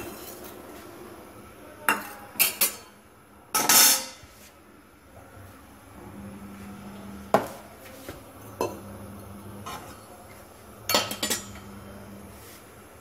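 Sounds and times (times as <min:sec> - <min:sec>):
metal spatula clanking on a pan: 0:03.6 - 0:04.2.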